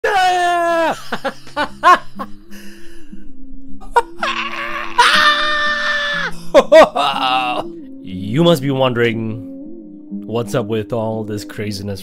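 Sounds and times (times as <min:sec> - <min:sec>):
background music low held notes: 0:00.0 - 0:12.0
man laughing: 0:00.5 - 0:02.8, 0:03.8 - 0:07.7
man vocalising theatrically: 0:06.8 - 0:07.7.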